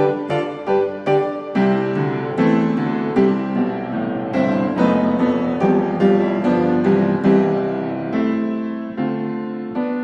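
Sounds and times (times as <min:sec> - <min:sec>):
piano music: 0:00.0 - 0:10.0.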